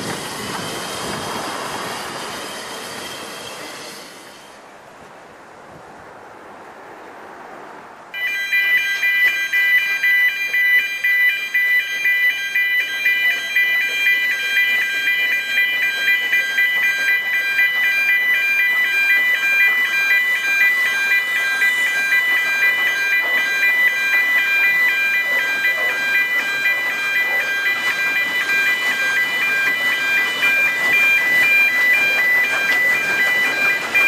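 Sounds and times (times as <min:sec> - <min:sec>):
level crossing electronic alarm: 0:08.2 - 0:34.0.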